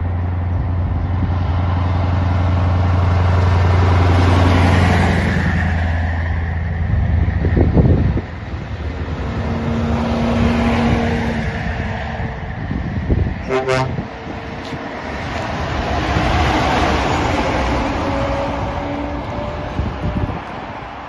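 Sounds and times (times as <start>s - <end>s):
heavy trucks driving past: 0.0s - 21.0s
truck horn toot: 13.4s - 14.1s.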